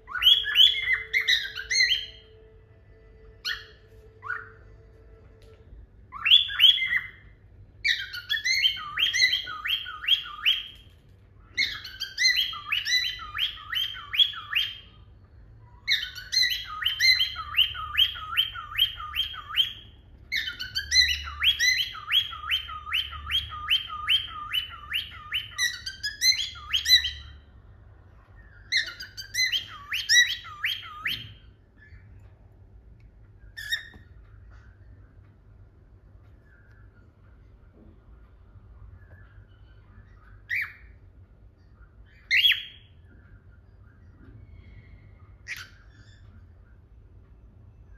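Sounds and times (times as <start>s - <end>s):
cockatiel chirping: 0.0s - 2.4s, 3.3s - 4.8s, 6.1s - 27.4s, 28.3s - 32.3s, 33.4s - 34.8s, 38.7s - 41.0s, 41.6s - 44.1s, 45.2s - 46.8s.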